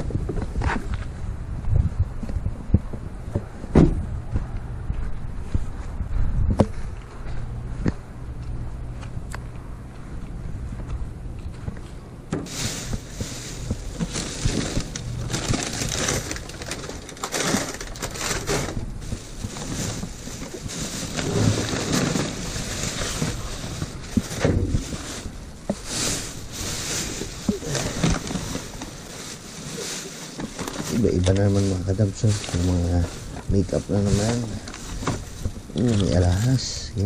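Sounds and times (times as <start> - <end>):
dull thuds: 2.7 - 4.4
plastic bags rustling and crinkling: 12.4 - 37.0.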